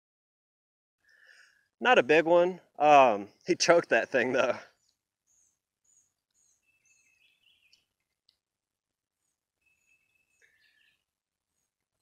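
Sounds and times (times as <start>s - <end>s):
faint bird chirps: 4.6s - 8.4s, 9.1s - 12.0s.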